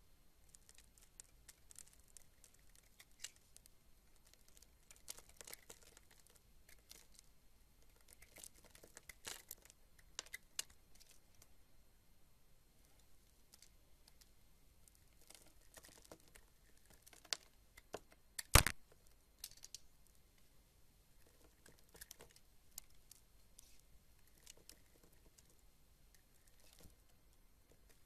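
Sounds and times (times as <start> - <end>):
sharp loud click: 18.4 - 18.8.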